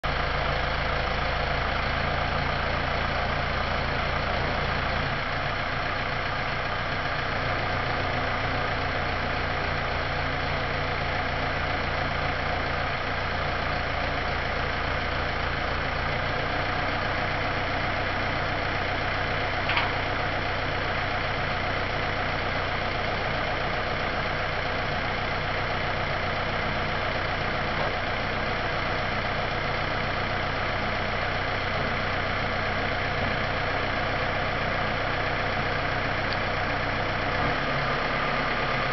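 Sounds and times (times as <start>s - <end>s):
tractor diesel engine idling: 0.0s - 38.9s
short click: 19.7s - 20.0s.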